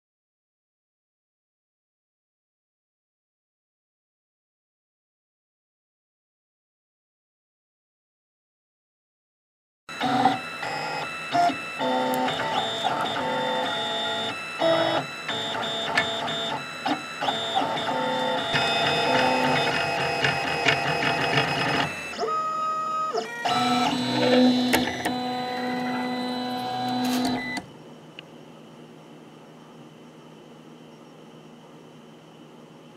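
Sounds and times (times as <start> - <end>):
printer stepper motors whining: 9.9 - 27.8.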